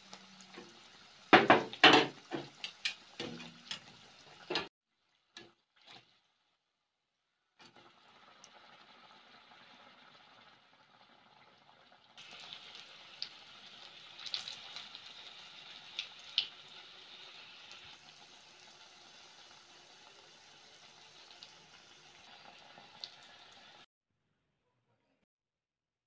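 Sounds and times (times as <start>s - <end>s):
oil popping and crackling: 0.0s - 6.1s, 11.9s - 18.9s
hot oil sizzling: 0.0s - 6.2s, 7.6s - 23.9s.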